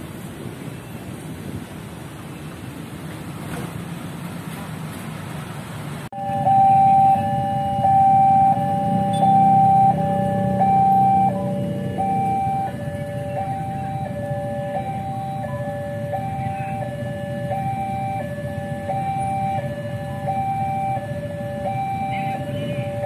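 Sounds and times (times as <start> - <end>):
two-tone crossing alarm: 6.1 - 23.0.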